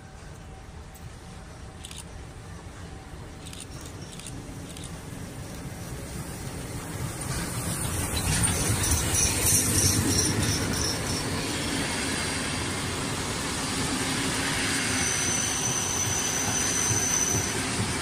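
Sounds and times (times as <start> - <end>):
train carriages rumbling on rails: 0.0 - 18.0
wheel squeal: 7.9 - 11.3, 14.8 - 17.9.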